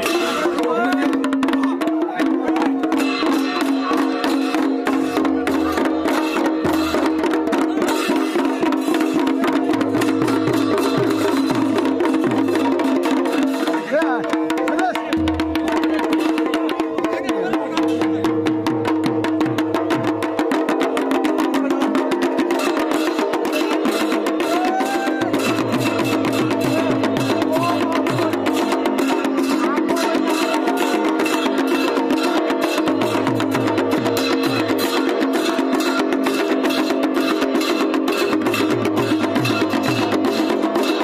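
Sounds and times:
drums beaten with sticks: 0:00.0 - 0:41.0
hand cymbals clashing: 0:02.9 - 0:13.9, 0:22.4 - 0:41.0.

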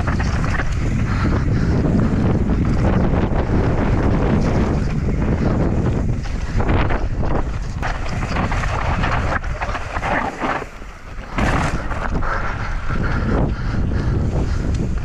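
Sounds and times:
tyres crunching over loose stones: 0:00.0 - 0:01.0, 0:06.0 - 0:12.4
bike clattering: 0:00.0 - 0:15.0
wind buffeting microphone: 0:00.0 - 0:15.0.

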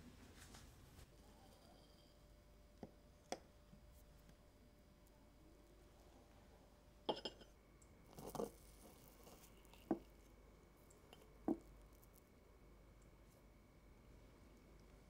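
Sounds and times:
fork clinking on ceramic plate: 0:07.1 - 0:07.5.

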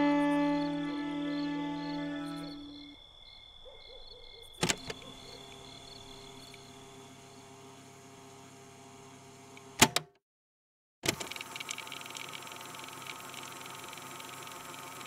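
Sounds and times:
violin music: 0:00.0 - 0:02.8.

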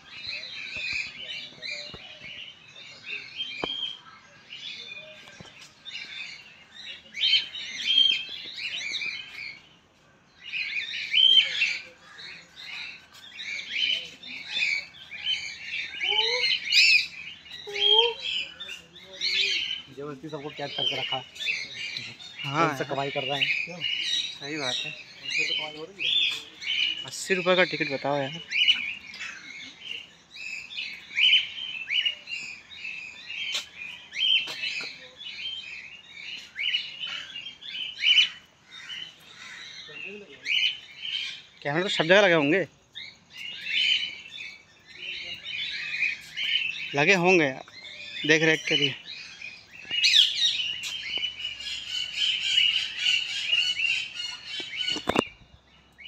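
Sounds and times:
small birds chirping and chattering: 0:00.0 - 0:56.0.

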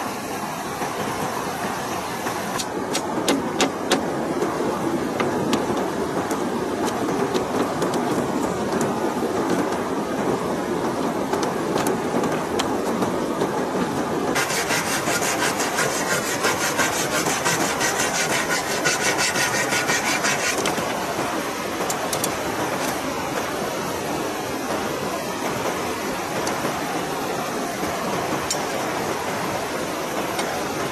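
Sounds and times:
river water rushing: 0:12.4 - 0:30.9
blade rasping through bamboo: 0:14.4 - 0:21.0.

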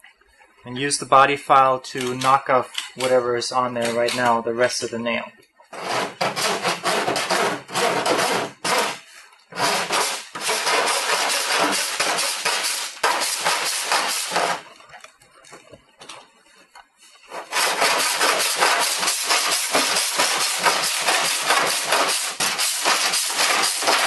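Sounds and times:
file rasping on metal panel: 0:05.7 - 0:14.6, 0:17.3 - 0:24.0.

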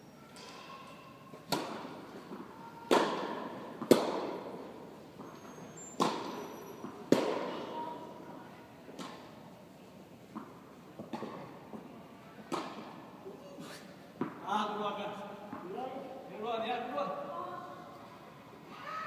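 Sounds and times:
tennis balls bouncing on court: 0:01.4 - 0:07.9, 0:08.9 - 0:09.4, 0:10.3 - 0:11.9, 0:12.5 - 0:13.1, 0:14.1 - 0:14.6, 0:15.4 - 0:15.8
tennis balls struck with rackets: 0:01.4 - 0:08.2, 0:08.9 - 0:09.5, 0:10.3 - 0:13.2, 0:14.1 - 0:14.5.

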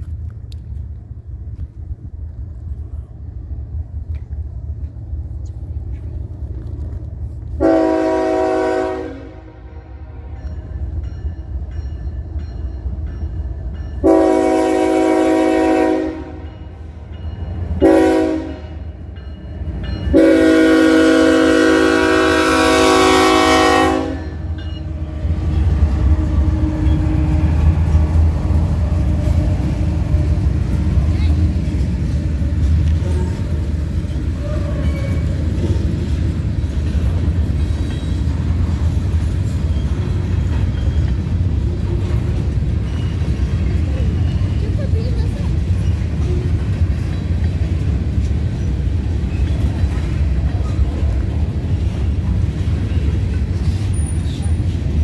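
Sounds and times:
low rumble of locomotives: 0:00.0 - 0:55.0
locomotive air horn: 0:07.6 - 0:10.3, 0:14.0 - 0:16.5, 0:17.8 - 0:18.8, 0:20.1 - 0:24.5, 0:26.0 - 0:27.8.

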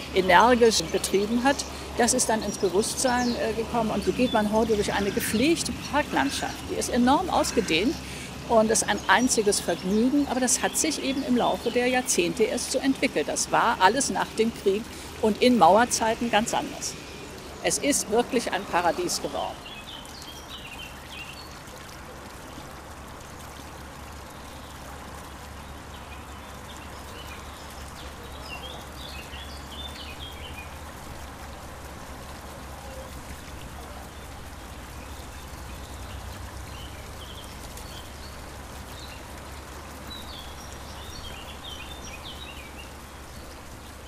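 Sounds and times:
birds chirping: 0:00.0 - 0:22.0, 0:24.2 - 0:30.8, 0:32.8 - 0:44.0
trickling water: 0:00.0 - 0:44.0.

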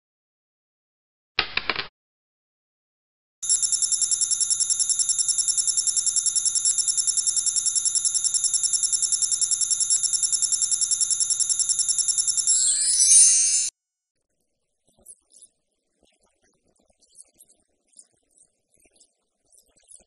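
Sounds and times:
electronic trilling ring: 0:03.4 - 0:13.7.

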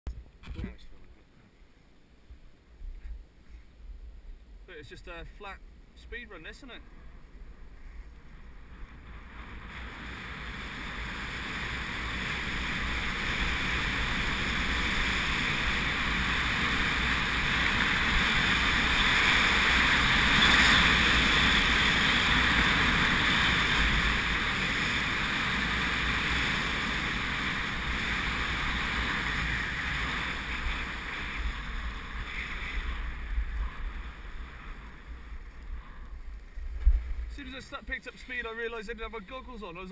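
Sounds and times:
deep wind buffeting: 0:06.8 - 0:37.4
wind rushing over microphone: 0:06.8 - 0:38.0.

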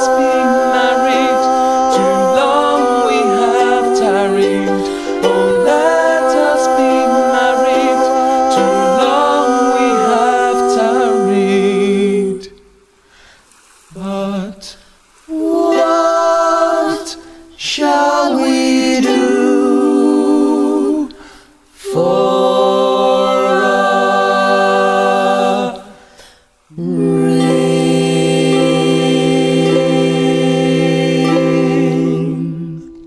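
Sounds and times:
group singing in harmony: 0:00.0 - 0:12.8, 0:15.3 - 0:33.0.

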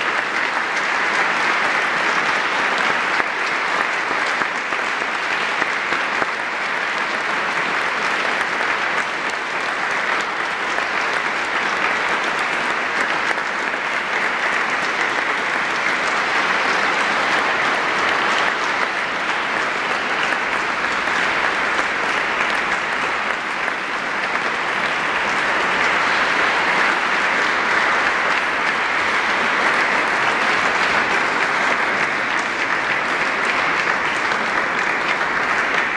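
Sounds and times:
audience applauding: 0:00.0 - 0:35.9.

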